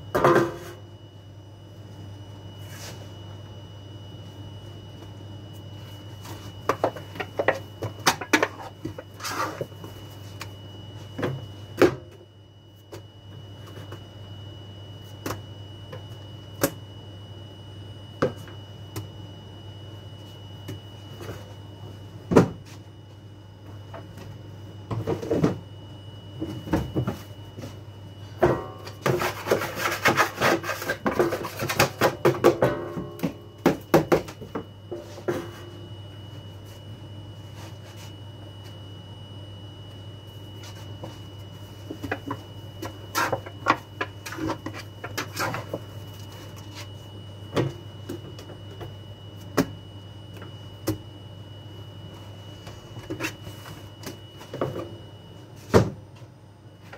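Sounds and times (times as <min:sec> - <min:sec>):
steady low hum: 0:00.0 - 0:56.9
dough scraper on plastic tub: 0:29.0 - 0:32.1.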